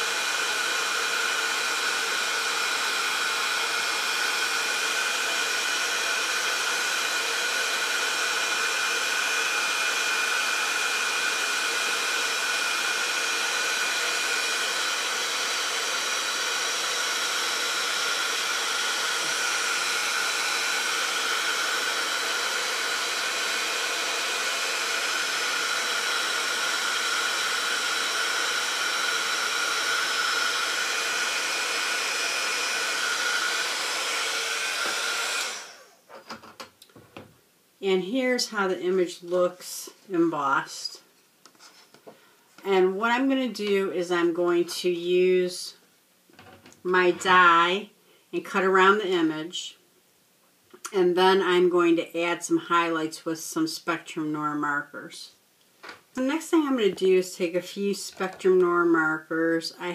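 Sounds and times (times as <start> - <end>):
heat gun blowing hot air: 0.0 - 36.1.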